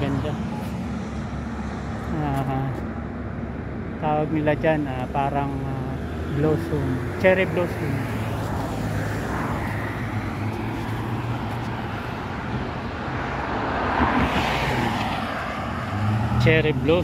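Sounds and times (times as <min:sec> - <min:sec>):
road traffic hum: 0:00.0 - 0:17.0
vehicle passing: 0:05.0 - 0:17.0.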